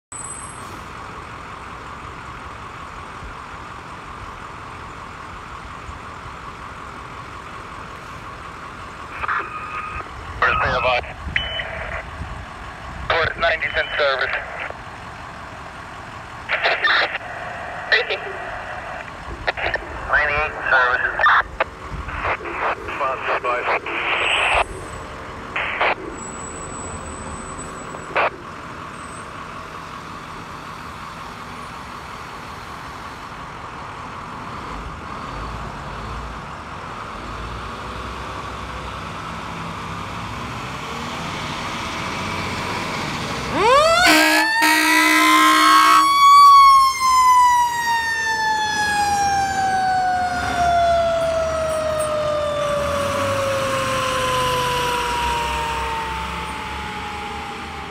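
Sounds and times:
engine rumble: 0.1 - 57.9
air horn blasts: 43.9 - 46.1.

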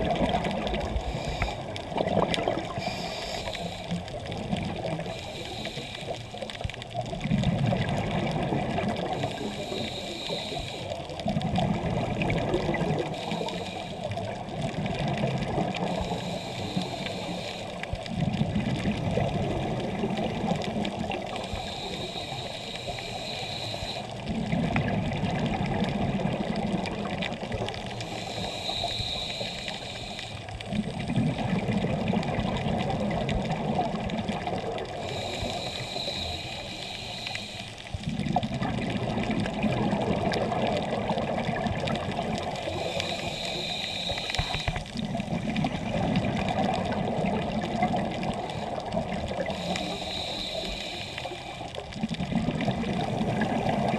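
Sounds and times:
exhaled bubbles underwater: 0.0 - 53.9
regulator inhale hiss: 0.9 - 1.8, 2.7 - 6.6, 9.1 - 11.3, 13.0 - 14.3, 15.7 - 18.2, 20.8 - 24.3, 27.7 - 30.6, 34.8 - 38.2, 42.4 - 45.0, 48.3 - 51.8.

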